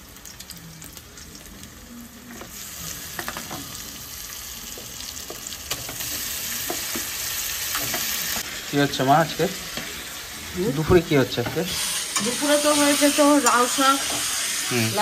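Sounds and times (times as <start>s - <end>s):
food sizzling in hot oil: 0.0s - 15.0s.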